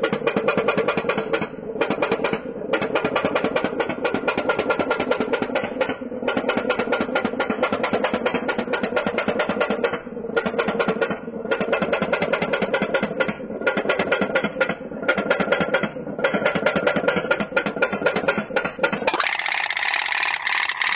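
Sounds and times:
toy steam boat engine popping: 18.3 - 20.9
steady sound: 19.1 - 20.9.

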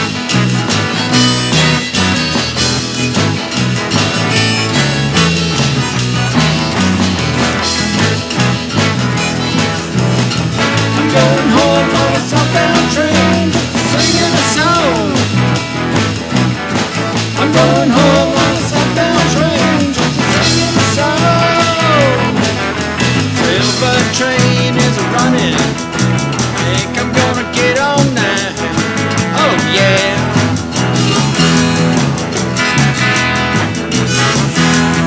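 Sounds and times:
rock band playing: 0.0 - 35.0
harmonica bent wavering notes: 0.3 - 14.9.

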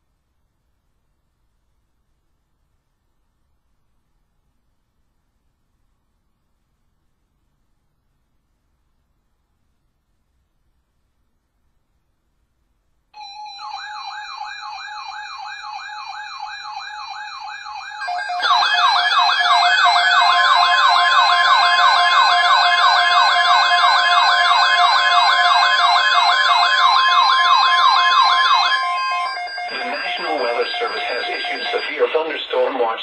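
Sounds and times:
electronic warbling siren alarms: 13.2 - 33.0
steady warning tone: 13.2 - 33.0.

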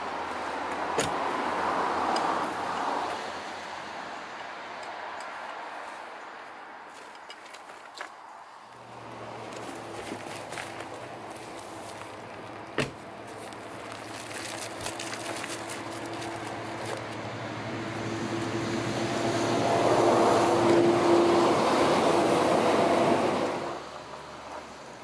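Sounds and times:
motor vehicle passing: 8.4 - 24.8
car door shutting: 12.8 - 13.0.

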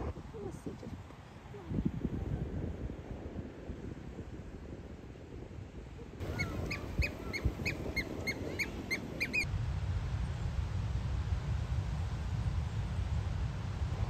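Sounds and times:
oystercatchers piping calls: 6.2 - 9.4.

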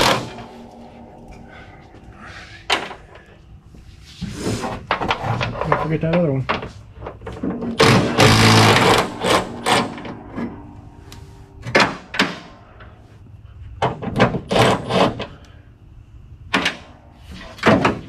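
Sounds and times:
loud scraping rush: 0.0 - 5.4, 7.4 - 13.4.

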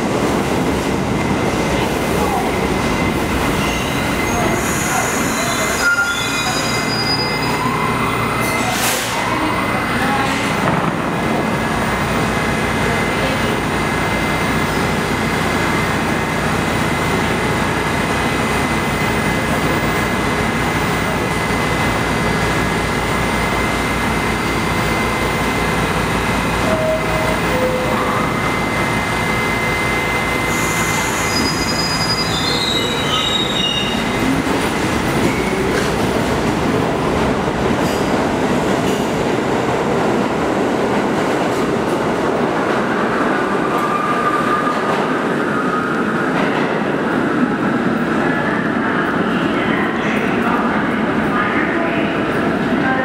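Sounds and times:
train rumble and hiss: 0.0 - 43.9
high squeals: 3.0 - 8.7, 30.5 - 34.2.

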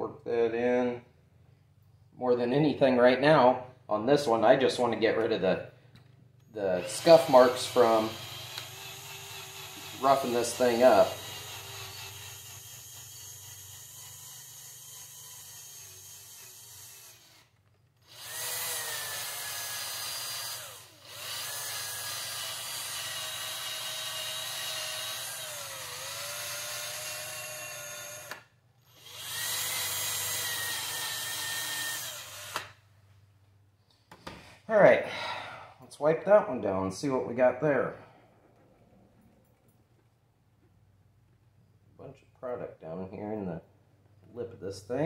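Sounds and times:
cordless drill motor whine: 6.8 - 32.8.

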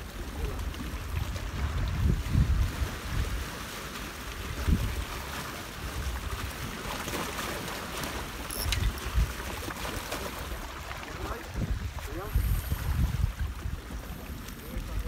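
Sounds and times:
wind buffeting microphone: 0.0 - 3.6, 4.4 - 6.8, 8.6 - 9.6, 10.5 - 15.0
waves breaking on rocks: 0.0 - 15.0.

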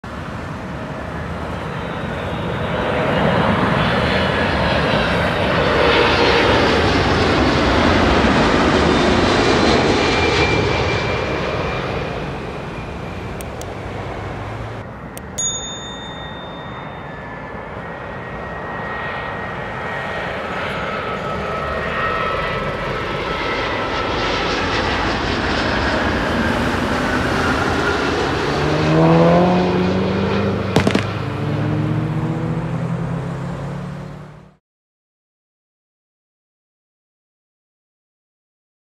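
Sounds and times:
jet airliner passing overhead: 0.0 - 34.6
jet plane approaching: 0.0 - 34.6.

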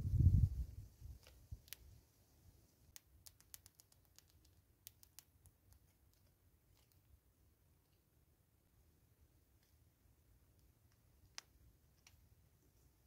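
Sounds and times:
squirrel cracking seeds clicks: 1.2 - 2.0, 2.9 - 7.1, 10.9 - 12.2.

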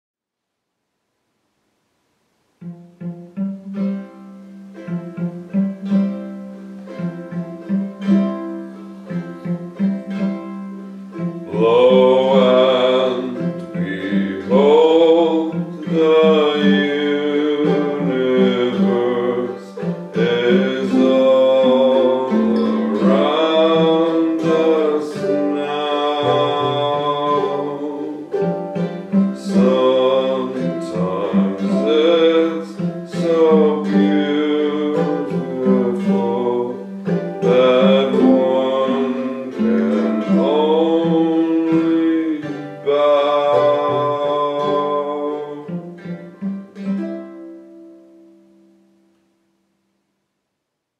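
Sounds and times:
cello low notes: 2.6 - 46.9
plucked string instrument: 2.6 - 49.7
man singing: 11.2 - 46.4.

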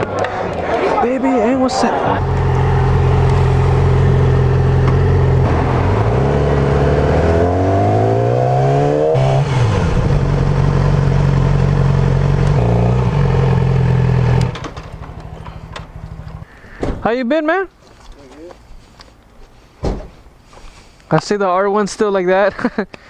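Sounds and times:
motorcycle engine revving: 2.1 - 16.4.

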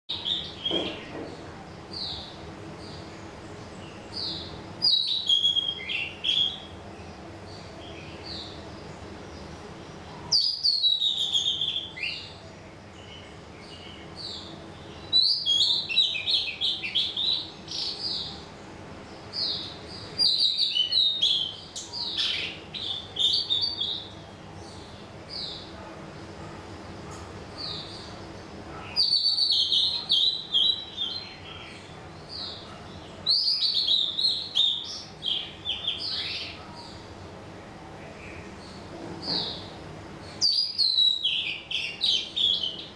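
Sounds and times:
songbird singing: 0.1 - 42.9
bird chirps: 3.8 - 6.8, 38.2 - 42.9.

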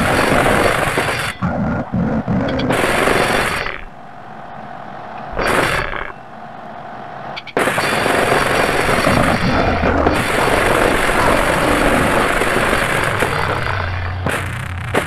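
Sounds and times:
harsh distorted noise music: 0.0 - 3.9, 7.4 - 15.0.

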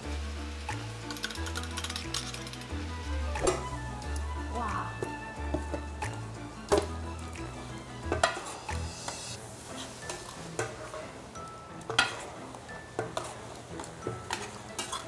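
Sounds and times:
food sizzling on griddle: 0.0 - 3.1
metal clanking against pan: 8.1 - 8.5, 11.8 - 12.4, 14.0 - 15.0.

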